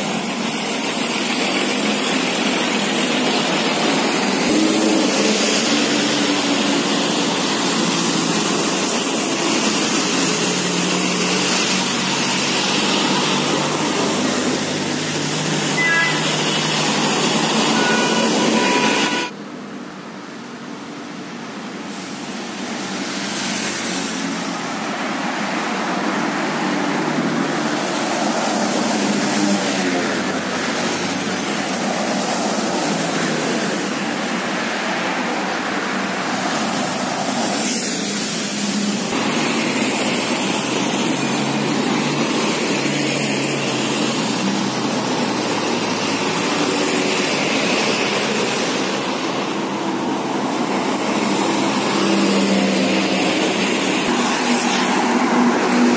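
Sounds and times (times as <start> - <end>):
cars driving past: 0.0 - 19.3, 21.8 - 55.9
motorcycles passing: 0.0 - 19.3, 50.0 - 55.9
buses driving past: 0.0 - 55.9.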